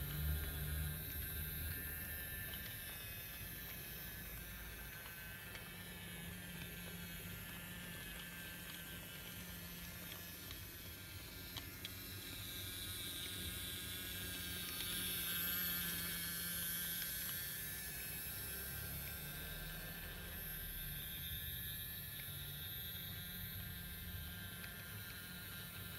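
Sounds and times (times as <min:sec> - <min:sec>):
toy train motor whirring: 0:00.0 - 0:25.9.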